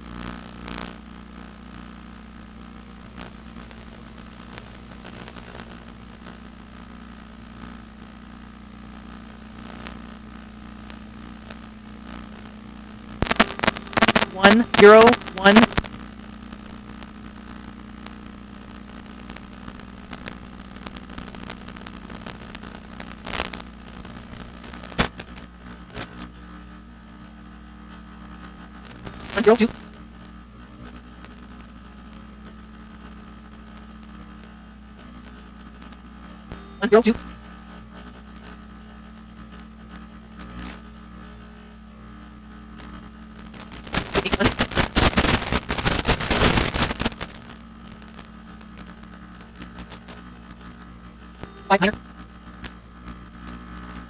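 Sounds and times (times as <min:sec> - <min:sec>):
faint high whine: 0:13.2 - 0:15.8, 0:29.0 - 0:29.7, 0:36.5 - 0:37.2, 0:43.9 - 0:44.6, 0:51.4 - 0:52.0
steady hum: 0:13.2 - 0:15.8, 0:29.0 - 0:29.7, 0:36.5 - 0:37.2, 0:43.9 - 0:44.8, 0:51.4 - 0:52.0
crackling clicks: 0:13.2 - 0:15.9, 0:29.1 - 0:29.7, 0:36.5 - 0:37.1, 0:43.9 - 0:47.3
steady electrical hum: 0:13.2 - 0:24.6, 0:28.9 - 0:29.7, 0:36.5 - 0:37.2, 0:43.9 - 0:44.7, 0:51.2 - 0:52.6
crackling buffeting noise: 0:13.2 - 0:25.4, 0:29.0 - 0:29.7, 0:36.5 - 0:37.2, 0:43.5 - 0:50.6, 0:51.4 - 0:54.0.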